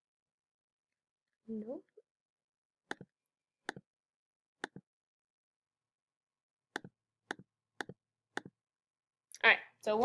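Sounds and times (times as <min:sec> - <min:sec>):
computer mouse clicks: 0:02.9 - 0:03.9, 0:04.6 - 0:04.8, 0:06.7 - 0:08.6.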